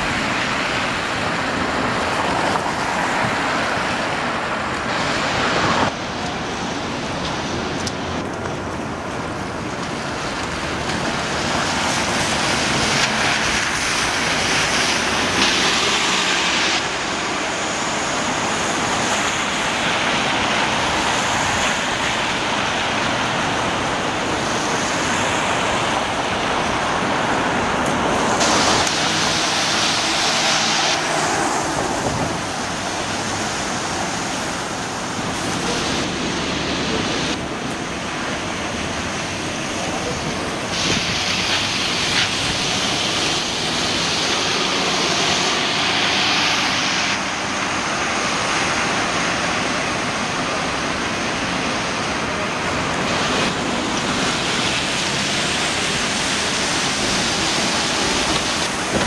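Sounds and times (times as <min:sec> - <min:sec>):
tyres hissing on wet road: 0:00.0 - 0:59.0.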